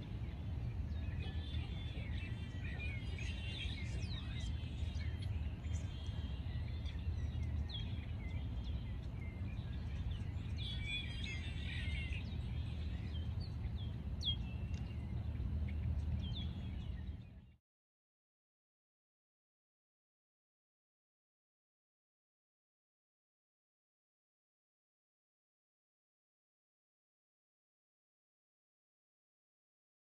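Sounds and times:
small birds chirping: 0.0 - 17.6
steady low rumble: 0.0 - 17.6.

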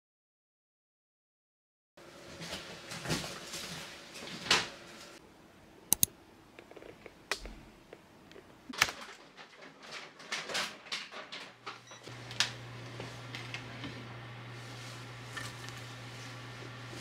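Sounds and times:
sharp clicks: 5.9 - 7.5.

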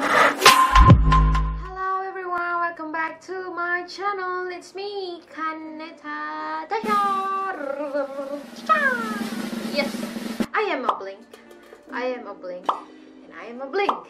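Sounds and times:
electronic intro music: 0.4 - 1.7
woman singing unaccompanied: 1.7 - 8.7.

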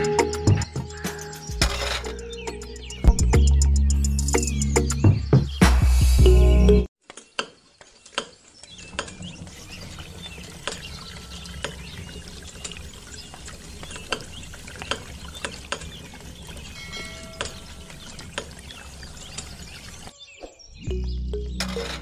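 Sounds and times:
water trickling into metal bucket: 8.8 - 20.1.

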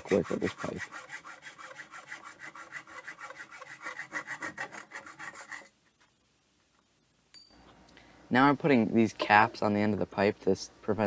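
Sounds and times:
hacksaw cutting metal pipe: 0.0 - 5.7.

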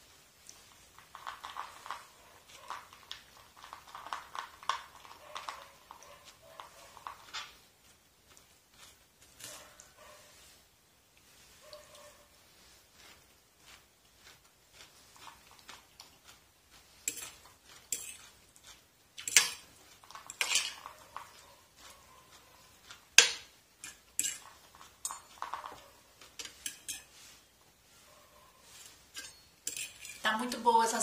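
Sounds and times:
metal fork scraping a plate: 17.0 - 18.4, 19.2 - 21.0, 23.2 - 25.6, 26.3 - 27.4, 28.8 - 30.2.

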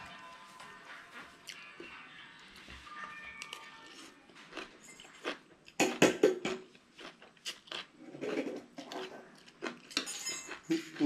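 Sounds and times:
person chewing: 3.5 - 11.0.

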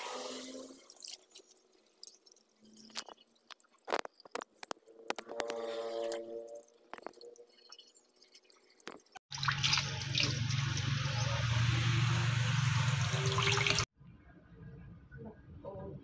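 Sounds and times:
tap water running: 8.8 - 13.9.

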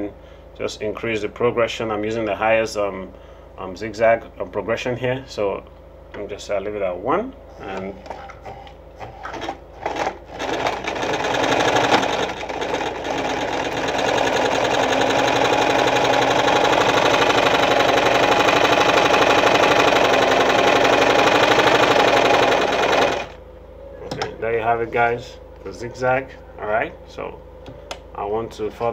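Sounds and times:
sewing machine running: 9.3 - 23.4.

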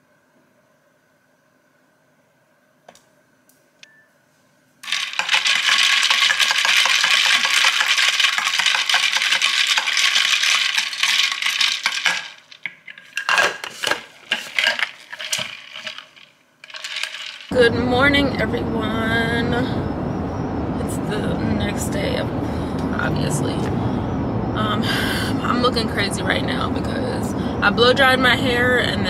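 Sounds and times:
metal straw clinking in cup: 4.9 - 17.5.

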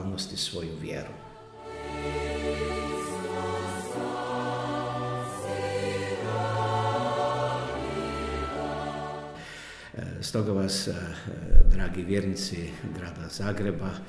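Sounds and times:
choir singing held chords: 1.0 - 10.0.

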